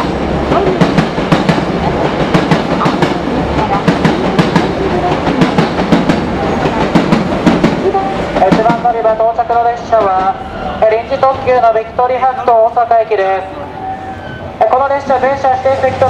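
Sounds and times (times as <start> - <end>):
train wheels clacking over rail joints: 0.0 - 9.0
train rumble: 0.0 - 16.0.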